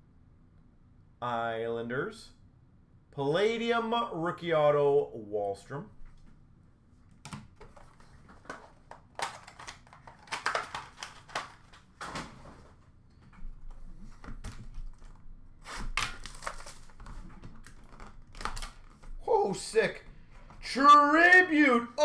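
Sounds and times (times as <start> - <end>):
trading cards handled: 7.1 - 11.8.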